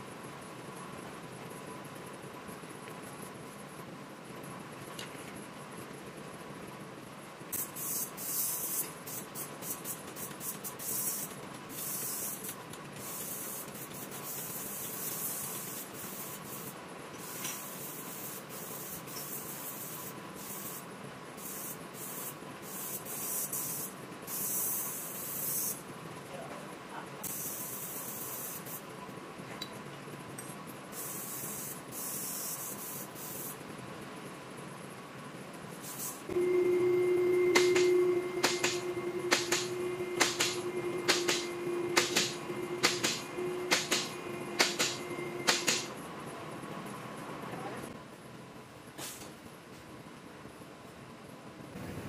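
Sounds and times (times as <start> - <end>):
hissing bursts: 37.6 - 45.9.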